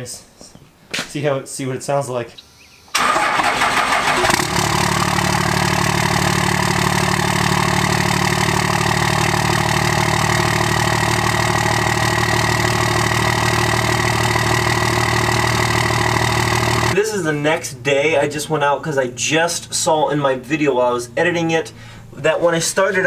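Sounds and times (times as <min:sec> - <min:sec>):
diesel engine starting and idling: 0:03.0 - 0:17.0.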